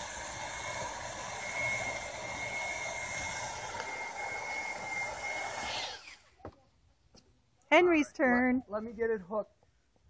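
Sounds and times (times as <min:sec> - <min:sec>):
hiss: 0:00.0 - 0:06.2
winch motor whining: 0:00.0 - 0:06.2.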